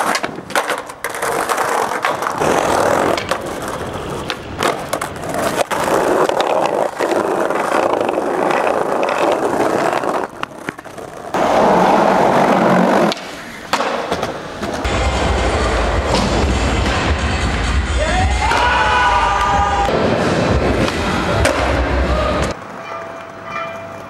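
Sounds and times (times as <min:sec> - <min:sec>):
skateboard clacking on ground: 0:00.0 - 0:14.9
skateboard rolling on concrete: 0:00.0 - 0:24.0.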